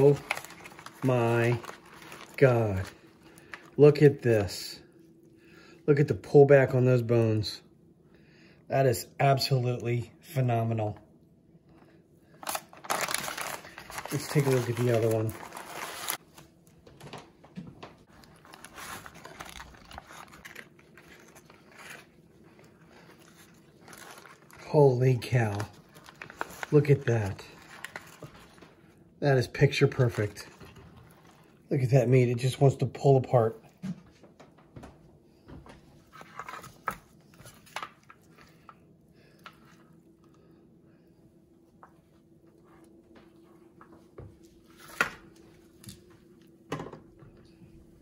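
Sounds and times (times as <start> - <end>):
wrapping paper rustling and crinkling: 0.0 - 4.1, 12.4 - 17.3, 18.0 - 29.0.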